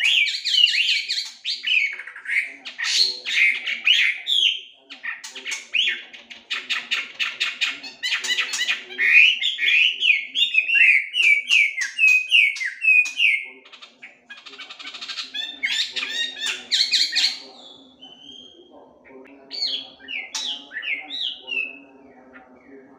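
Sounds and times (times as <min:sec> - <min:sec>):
bird singing whistles: 0:09.3 - 0:13.5.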